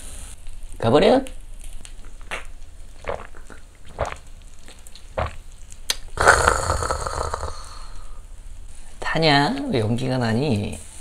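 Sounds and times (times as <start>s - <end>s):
loud hiss: 6.2s - 8.3s.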